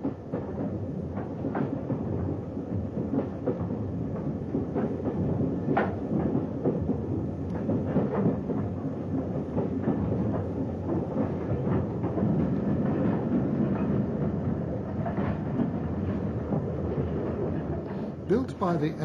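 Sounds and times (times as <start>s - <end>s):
train rumbling: 0.0s - 19.0s.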